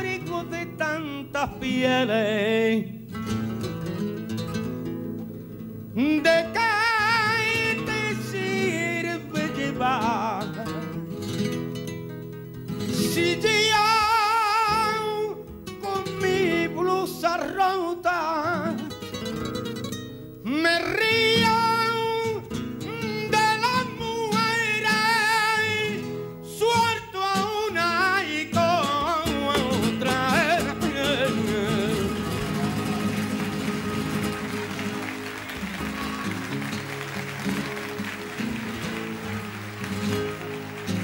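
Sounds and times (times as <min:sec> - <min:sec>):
man singing: 0:00.0 - 0:03.1, 0:05.9 - 0:11.0, 0:12.9 - 0:19.0, 0:20.4 - 0:34.0
acoustic guitar: 0:00.0 - 0:41.0.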